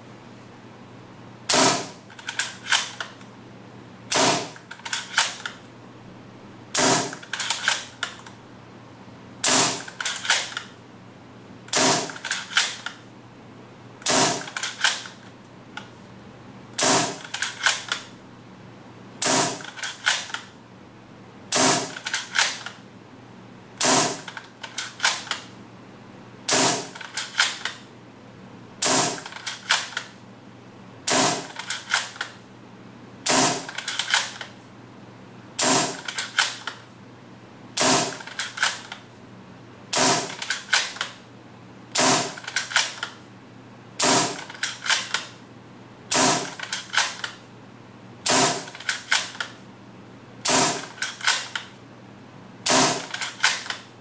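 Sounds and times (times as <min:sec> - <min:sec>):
airsoft rifle shots: 0:01.5 - 0:02.0, 0:04.1 - 0:04.6, 0:06.8 - 0:07.2, 0:09.4 - 0:10.5, 0:11.7 - 0:12.8, 0:14.0 - 0:14.9, 0:16.8 - 0:17.3, 0:19.2 - 0:20.4, 0:21.5 - 0:22.6, 0:23.8 - 0:24.3, 0:26.5 - 0:27.0, 0:28.8 - 0:29.3, 0:31.1 - 0:31.6, 0:33.2 - 0:33.8, 0:35.6 - 0:36.0, 0:37.8 - 0:38.3, 0:39.9 - 0:41.0, 0:42.0 - 0:42.9, 0:44.0 - 0:44.5, 0:46.1 - 0:46.6, 0:48.3 - 0:48.8, 0:50.4 - 0:51.5, 0:52.7 - 0:53.7
rifle bolt clacking: 0:50.8 - 0:51.6.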